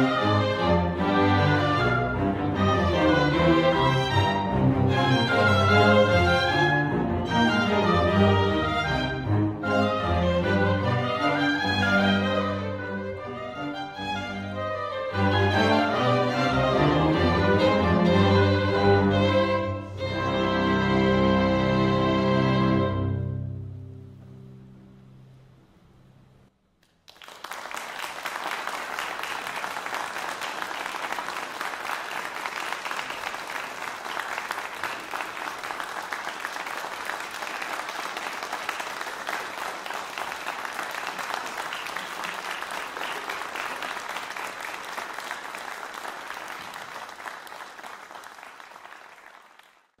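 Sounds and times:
audience applause: 26.8 - 50.0.

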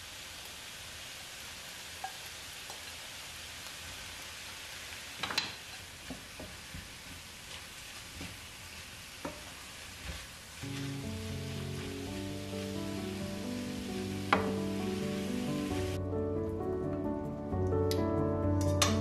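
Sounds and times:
food sizzling in a hot pan: 0.0 - 16.0
wooden spatula knocking on a pan: 14.3 - 14.6.

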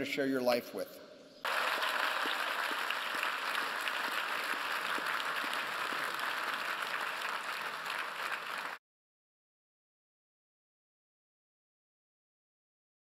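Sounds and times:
crowd applauding: 1.4 - 8.8.

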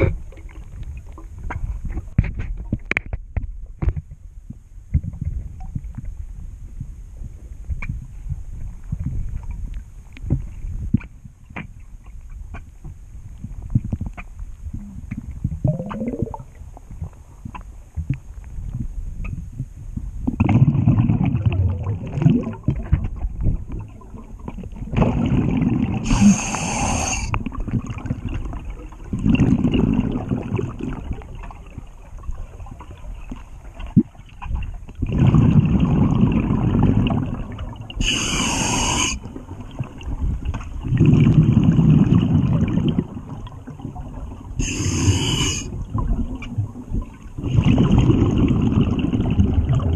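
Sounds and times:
underwater bubbles gurgling: 12.9 - 49.9.

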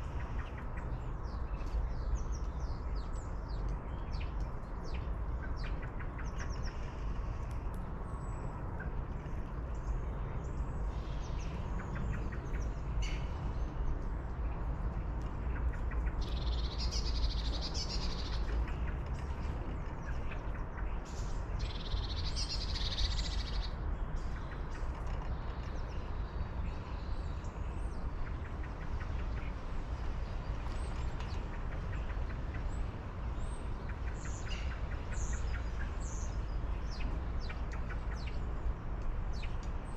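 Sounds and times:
wild birds chirping and calling: 15.0 - 38.6.

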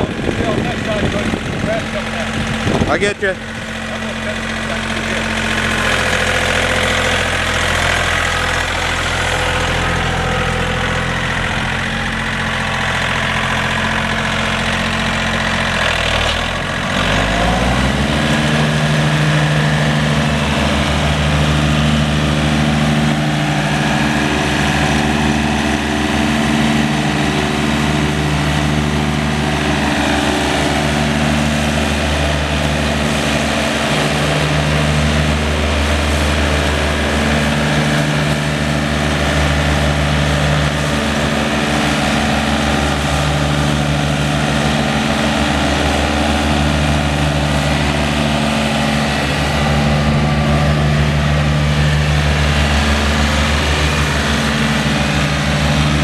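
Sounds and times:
tractor diesel engine revving: 0.0 - 56.0.

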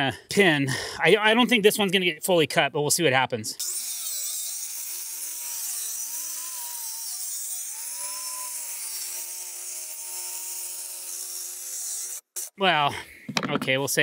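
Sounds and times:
circular saw cutting wood: 3.6 - 12.6.

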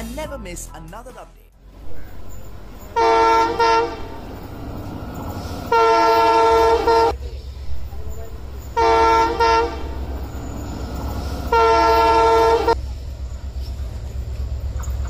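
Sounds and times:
train rumble: 1.6 - 15.0
train horn blast: 2.8 - 7.2, 8.6 - 12.8.

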